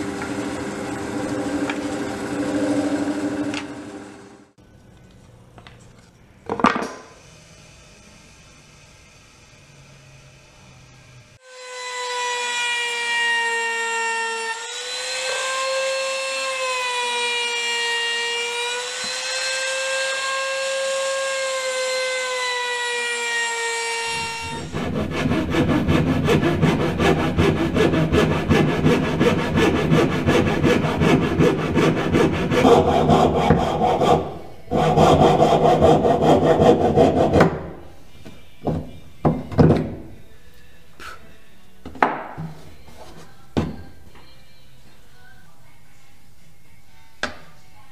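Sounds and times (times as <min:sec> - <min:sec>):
router whining: 0:00.0 - 0:04.5, 0:11.4 - 0:37.6
sawing through wood: 0:23.9 - 0:37.7.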